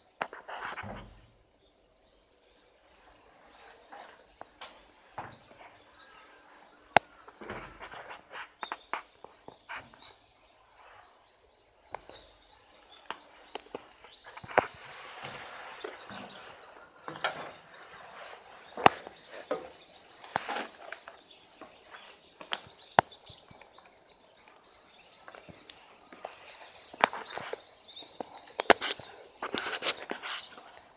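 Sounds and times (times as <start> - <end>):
small birds chirping: 0.0 - 30.9
footsteps on metal steps and gravel: 3.6 - 6.2, 7.0 - 10.2, 11.9 - 23.6.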